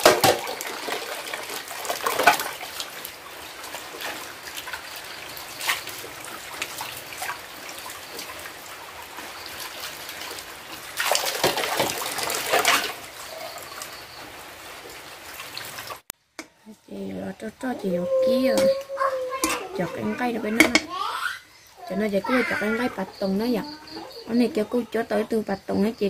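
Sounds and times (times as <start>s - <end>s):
tap water running onto dishes: 0.0s - 16.6s, 17.4s - 26.0s
water splashing: 0.0s - 16.6s, 17.7s - 26.0s
bowls knocking: 18.0s - 20.9s.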